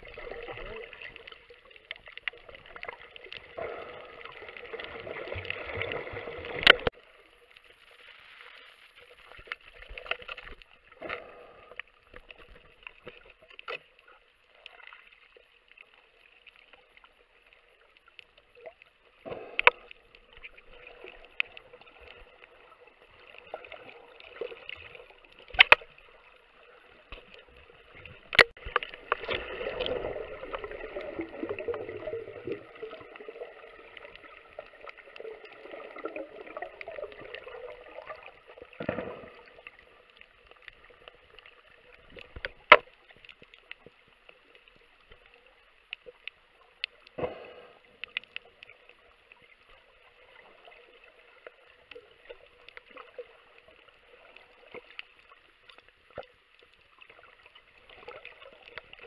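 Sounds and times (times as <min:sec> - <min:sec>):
faint underwater hiss: 0:00.0 - 0:59.0
bubbling rushes: 0:26.9 - 0:40.0.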